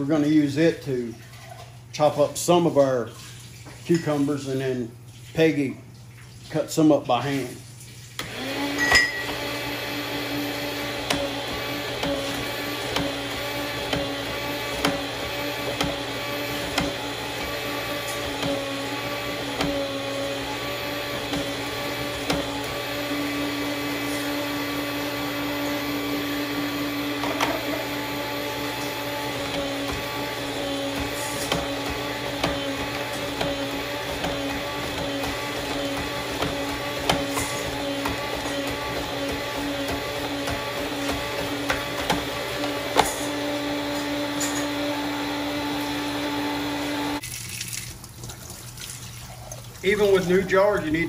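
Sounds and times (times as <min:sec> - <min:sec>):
meat slicer motor humming: 0:08.2 - 0:47.2.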